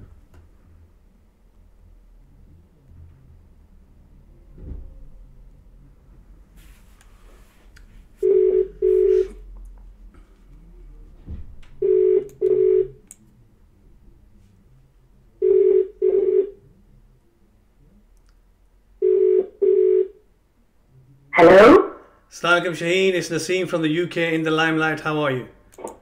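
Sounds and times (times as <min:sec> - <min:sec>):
telephone ringback tone: 0:08.2 - 0:09.4, 0:11.8 - 0:12.9, 0:19.0 - 0:20.2.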